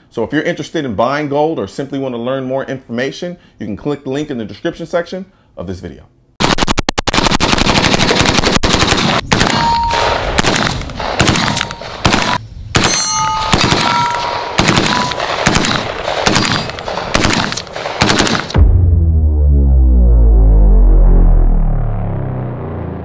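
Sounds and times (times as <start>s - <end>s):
rifle firing automatic bursts: 6.4s - 18.6s
short ringing tones: 9.6s - 10.2s, 12.8s - 15.3s.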